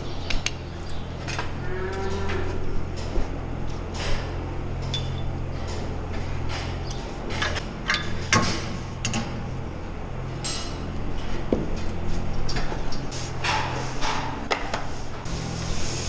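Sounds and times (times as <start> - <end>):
low machine hum: 0.0 - 16.0
metal gates clanking: 1.2 - 9.5.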